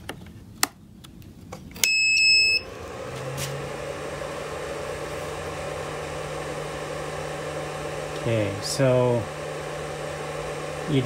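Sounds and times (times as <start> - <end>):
inverter hum with fan noise: 0.0 - 11.0
high electronic beep: 1.8 - 2.6.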